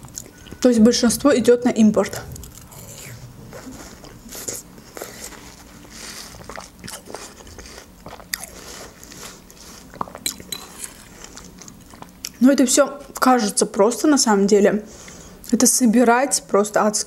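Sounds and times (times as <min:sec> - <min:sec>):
person chewing watermelon: 0:00.0 - 0:00.6, 0:02.3 - 0:12.4.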